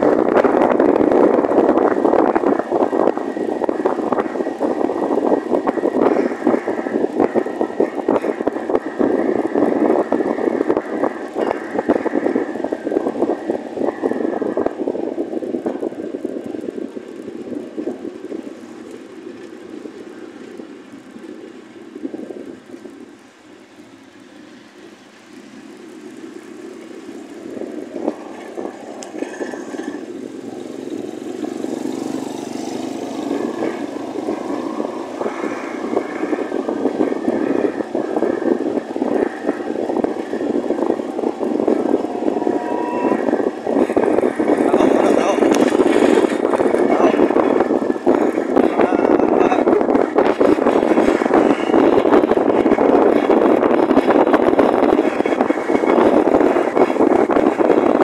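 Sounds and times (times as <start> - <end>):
wind buffeting microphone: 0.0 - 58.0
motorcycle engine: 24.0 - 58.0.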